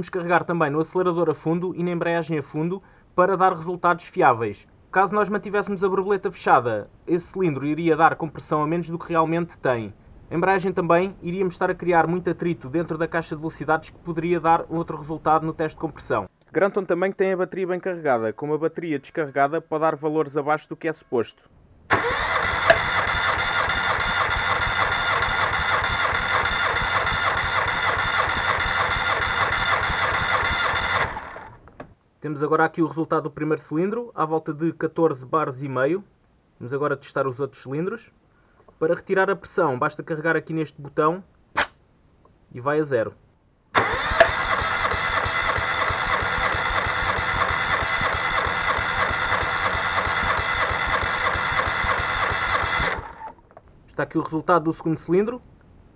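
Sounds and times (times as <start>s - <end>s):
starter motor cranking engine: 21.9s - 31.8s, 43.8s - 53.6s
sharp click: 41.6s - 41.8s.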